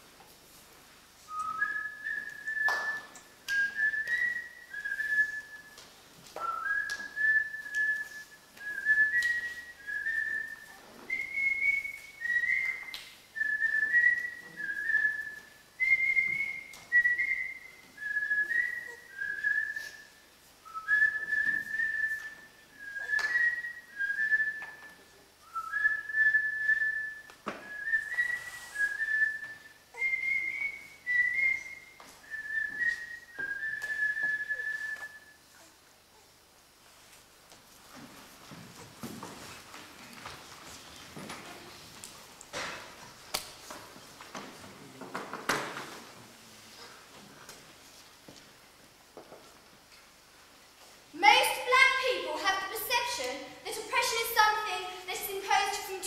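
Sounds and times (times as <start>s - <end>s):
high whistled tune: 1.3s - 5.8s, 6.4s - 35.4s.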